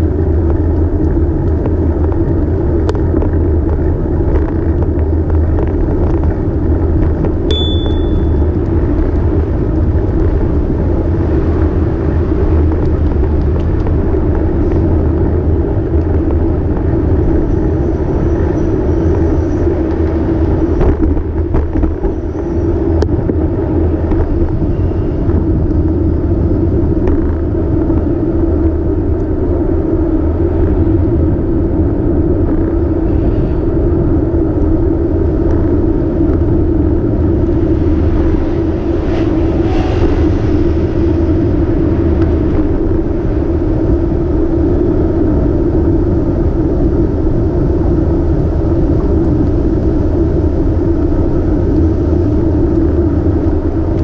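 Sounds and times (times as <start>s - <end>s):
city traffic: 0.0s - 54.0s
wind and road noise: 0.0s - 54.0s
high chirp: 7.5s - 8.4s.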